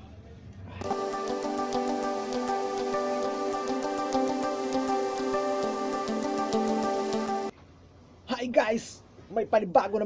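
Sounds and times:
light quick ticking beat: 0.8s - 7.5s
sustained chords: 0.8s - 7.5s.

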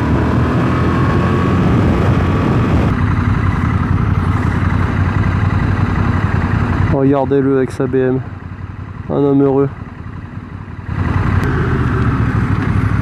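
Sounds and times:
motorcycle engine at road speed: 0.0s - 13.0s
wind rush: 0.4s - 3.1s
motorcycle engines idling: 2.9s - 13.0s.

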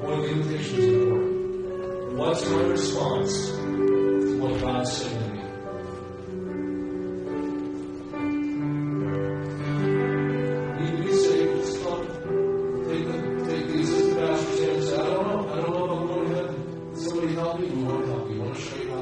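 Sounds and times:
slow hymn on soft piano: 0.0s - 19.0s.

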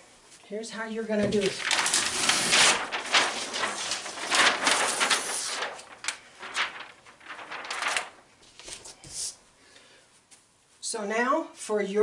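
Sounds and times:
paper rustling and crinkling: 1.1s - 9.4s.

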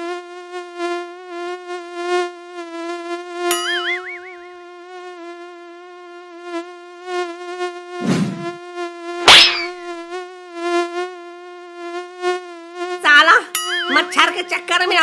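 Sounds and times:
mosquito buzzing high whine: 0.0s - 15.0s
short whoosh: 8.0s - 8.6s
hand slapping a cheek: 9.3s - 9.8s.

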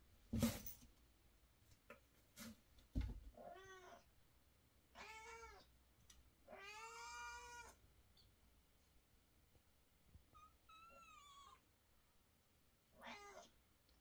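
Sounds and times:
thump: 0.3s - 0.8s, 2.9s - 3.3s
cat meowing: 5.0s - 5.7s, 6.5s - 7.8s, 10.4s - 11.7s, 13.0s - 13.6s.

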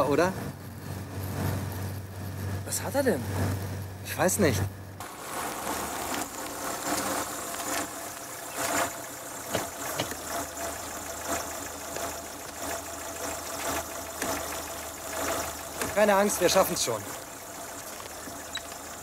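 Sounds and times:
car engine running unevenly with knocking: 5.0s - 19.0s.

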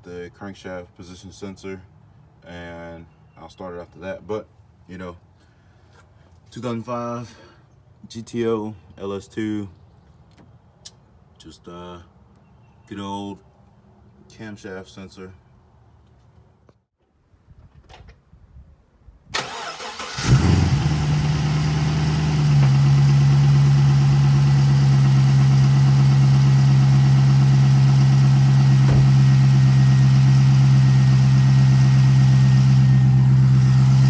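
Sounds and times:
engine cranking: 19.4s - 20.8s
engine idling: 19.4s - 34.0s.

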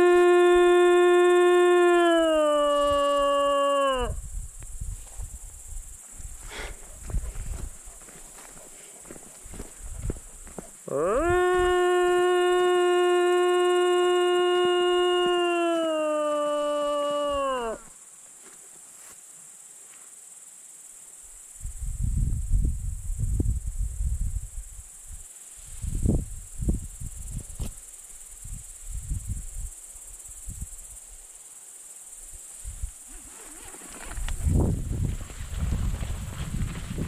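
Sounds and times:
insects chirring: 0.0s - 37.0s
footsteps on dirt track: 6.2s - 10.8s, 33.6s - 37.0s.

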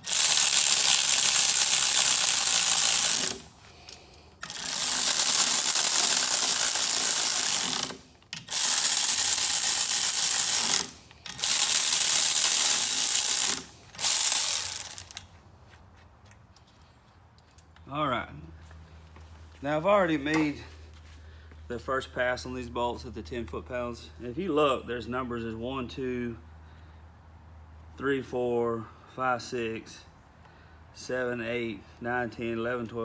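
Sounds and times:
electric ratchet spinning bolts: 0.0s - 15.3s.

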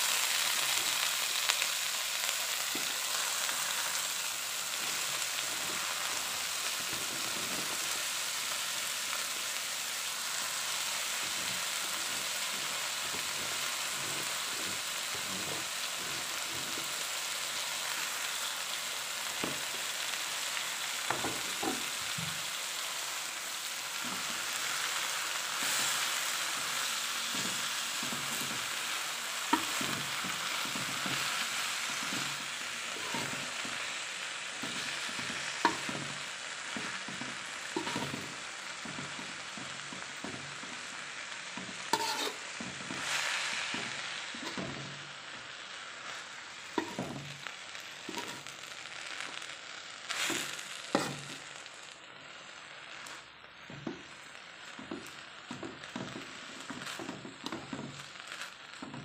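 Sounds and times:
vegetables sizzling in a wok: 0.0s - 59.0s
utensil scraping and knocking pan: 29.5s - 32.4s, 33.0s - 33.6s, 34.6s - 36.2s, 36.8s - 39.2s, 41.6s - 44.9s, 46.8s - 47.4s, 48.1s - 48.5s, 50.2s - 51.4s.

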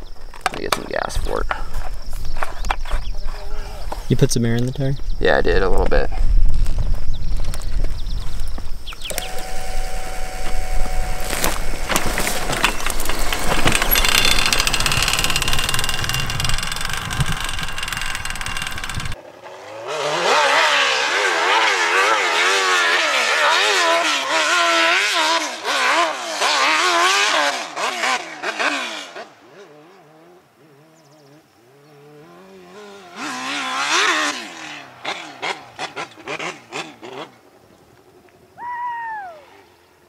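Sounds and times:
dirt bike engine rumbling: 0.0s - 19.2s, 31.0s - 37.3s
dirt bike revving hard: 9.1s - 31.0s, 31.7s - 37.4s.

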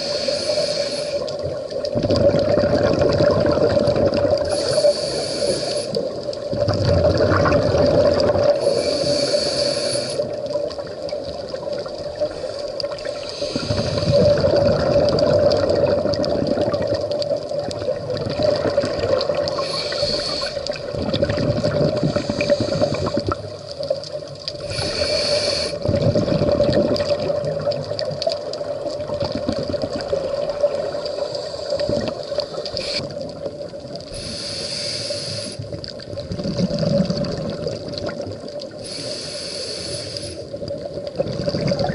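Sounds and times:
regulator hiss on inhale: 0.0s - 1.6s, 4.4s - 6.3s, 8.5s - 10.8s, 12.2s - 14.4s, 19.4s - 20.9s, 21.9s - 23.5s, 24.5s - 26.0s, 30.7s - 33.4s, 34.0s - 35.9s, 38.7s - 40.7s
gush of bubbles underwater: 1.4s - 4.8s, 6.0s - 9.1s, 10.2s - 34.2s, 35.6s - 38.8s, 40.5s - 41.9s.

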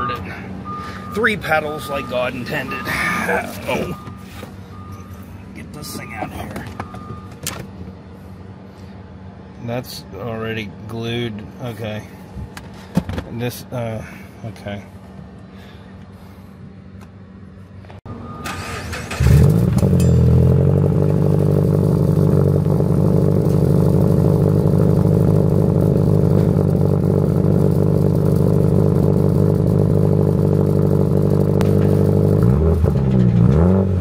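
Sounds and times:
car engine idling: 18.1s - 33.6s
engine revving: 18.5s - 34.0s.

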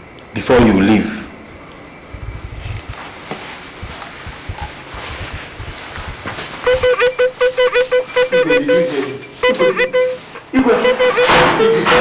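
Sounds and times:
crickets chirping: 0.0s - 12.0s
short sharp pitched notes: 6.6s - 12.0s.

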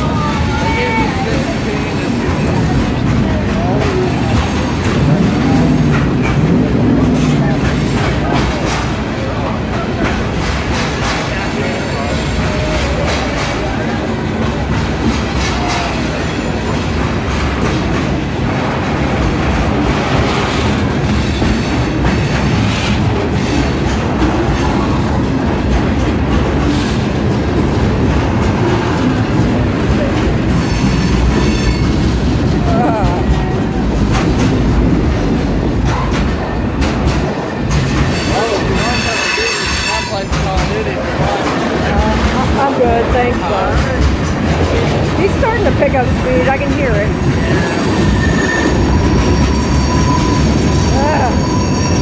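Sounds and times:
freight train cars rolling past: 0.0s - 52.0s
wheel squeal: 30.5s - 32.0s, 38.0s - 40.3s, 47.5s - 52.0s.

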